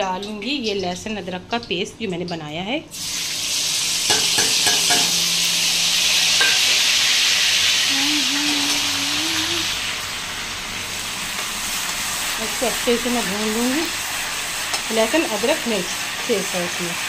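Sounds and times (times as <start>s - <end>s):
paste sizzling in hot oil: 2.9s - 17.0s
metal utensil clicking on pan: 4.1s - 5.2s.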